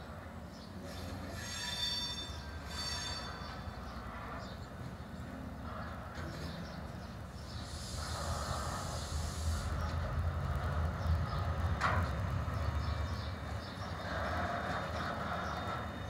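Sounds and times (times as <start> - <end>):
diesel locomotive rumble: 0.0 - 16.0
sharp squeak: 0.8 - 3.8
hiss: 7.5 - 10.1.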